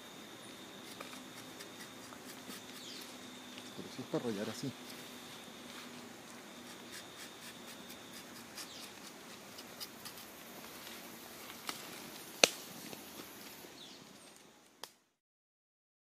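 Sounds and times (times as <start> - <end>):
knife scraping tree bark: 0.7 - 3.2, 5.8 - 12.5.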